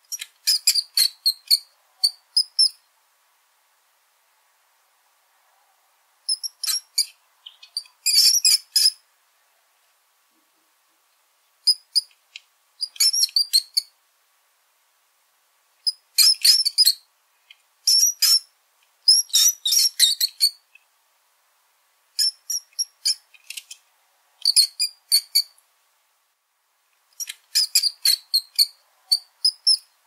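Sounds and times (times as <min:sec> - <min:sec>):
small rodent squeaking: 0:00.0 - 0:02.8, 0:06.3 - 0:09.0, 0:11.6 - 0:12.2, 0:12.8 - 0:13.9, 0:15.8 - 0:17.1, 0:17.8 - 0:18.5, 0:19.1 - 0:20.8, 0:22.2 - 0:23.8, 0:24.4 - 0:25.6, 0:27.2 - 0:30.0.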